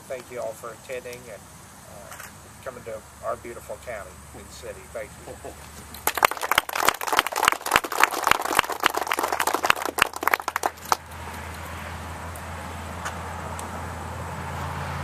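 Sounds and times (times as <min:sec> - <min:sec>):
audience applauding: 0:06.0 - 0:11.0
passing cars: 0:08.7 - 0:15.0.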